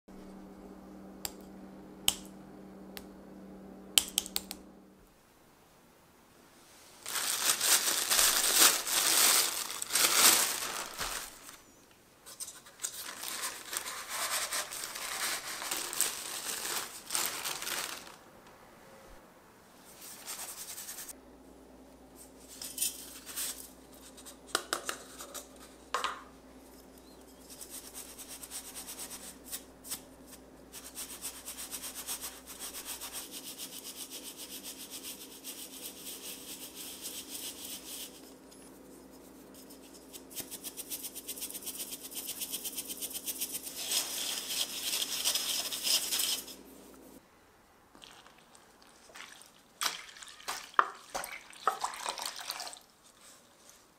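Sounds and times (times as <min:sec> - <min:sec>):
powder rasping through sieve mesh: 0:06.9 - 0:11.6, 0:12.3 - 0:18.2, 0:27.4 - 0:47.1.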